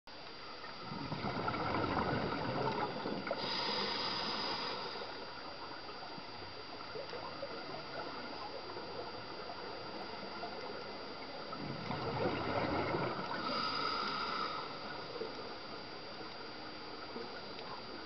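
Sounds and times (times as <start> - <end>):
underwater bubbles gurgling: 0.1 - 18.0.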